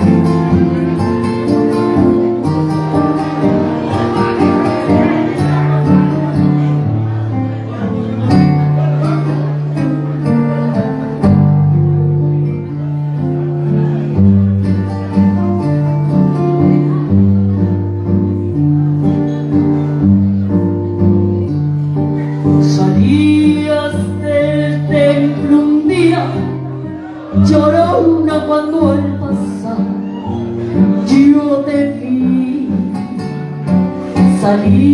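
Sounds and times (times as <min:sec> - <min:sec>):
guitar and bass backing track: 0:00.0 - 0:34.9
woman singing into microphone: 0:22.5 - 0:34.9.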